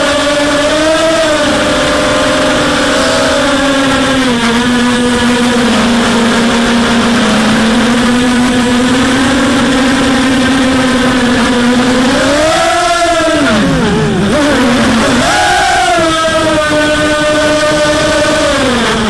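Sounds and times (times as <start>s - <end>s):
drone motors buzzing whine: 0.0s - 19.0s.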